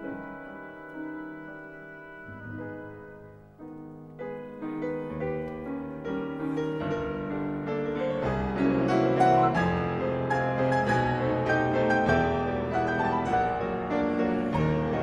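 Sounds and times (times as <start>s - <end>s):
grand piano classical passage: 0.0s - 15.0s.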